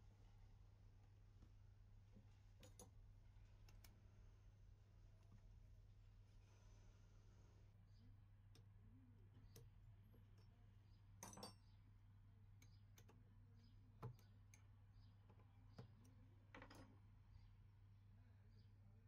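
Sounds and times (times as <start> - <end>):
low steady hum: 0.0 - 19.0
metallic clicks and clinks of tools: 11.2 - 11.7.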